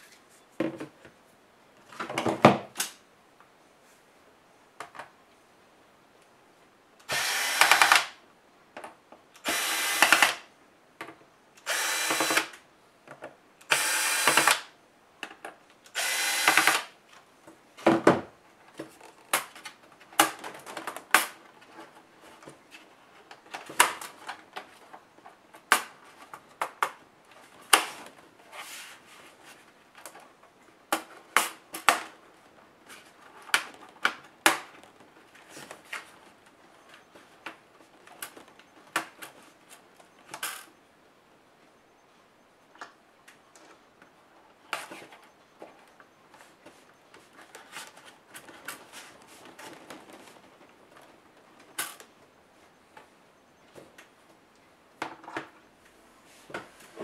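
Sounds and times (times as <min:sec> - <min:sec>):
electric screwdriver running: 0:07.1 - 0:08.1, 0:09.4 - 0:10.4, 0:11.6 - 0:12.5, 0:13.7 - 0:14.7, 0:16.0 - 0:16.9.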